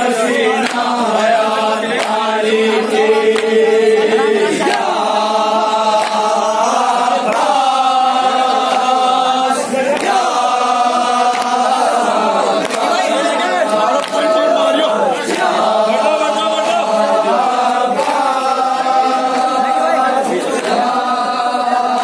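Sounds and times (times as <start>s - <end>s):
men chanting a lament: 0.0s - 22.0s
hands slapping chests: 0.3s - 7.8s, 8.5s - 9.2s, 9.8s - 14.5s, 15.2s - 19.6s.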